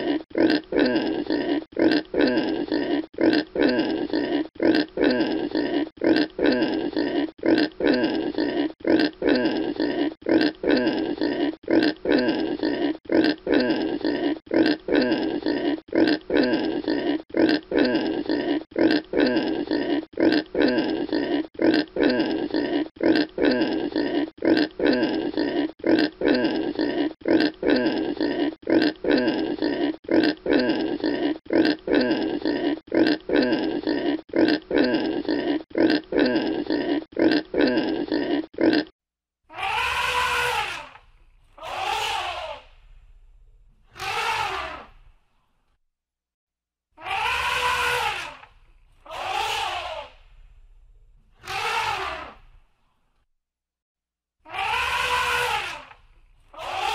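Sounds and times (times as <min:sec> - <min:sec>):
pig grunting: 0:00.0 - 0:38.9, 0:39.5 - 0:42.8, 0:43.8 - 0:45.1, 0:47.0 - 0:50.3, 0:51.3 - 0:52.6, 0:54.5 - 0:56.9
elephant trumpeting: 0:39.5 - 0:42.7, 0:43.9 - 0:45.0, 0:47.0 - 0:50.2, 0:51.4 - 0:52.5, 0:54.5 - 0:56.9.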